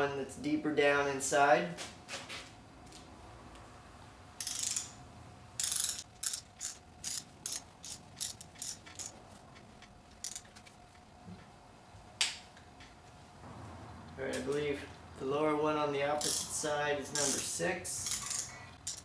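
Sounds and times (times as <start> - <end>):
torque wrench ratchet clicking: 4.4 - 5.0, 5.6 - 9.2, 10.2 - 10.5, 16.2 - 19.0.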